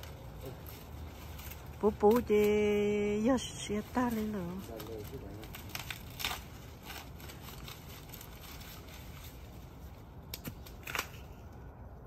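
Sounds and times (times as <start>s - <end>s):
corn stalks rustling and cracking: 0.0s - 12.0s.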